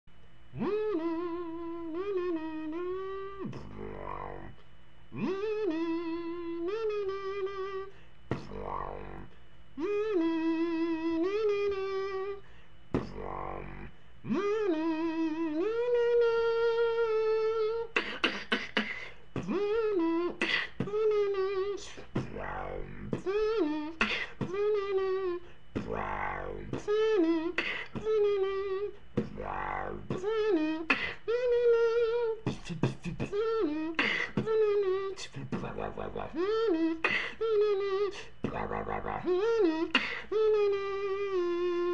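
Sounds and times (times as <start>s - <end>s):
beatboxing wobble bass: 0.5s - 41.9s
beatbox clicks and snares: 8.3s - 8.6s, 18.0s - 21.2s, 32.5s - 37.3s.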